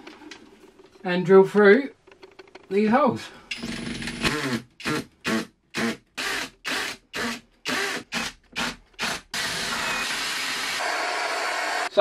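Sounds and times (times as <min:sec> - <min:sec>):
cordless drill bursts: 0:04.2 - 0:11.9.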